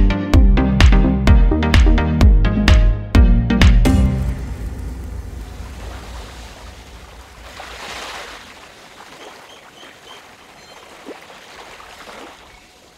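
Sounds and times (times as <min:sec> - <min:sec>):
waves washing on sandy beach: 0:04.4 - 0:12.9.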